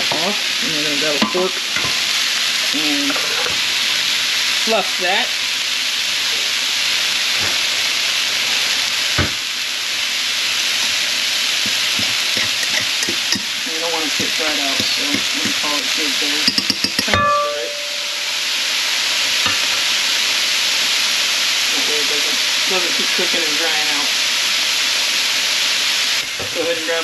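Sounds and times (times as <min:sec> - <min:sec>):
fish and vegetables sizzling: 0:00.0 - 0:27.0
metal pot ringing: 0:01.2 - 0:01.9, 0:11.9 - 0:18.7
utensil scraping a metal pot: 0:11.6 - 0:18.2.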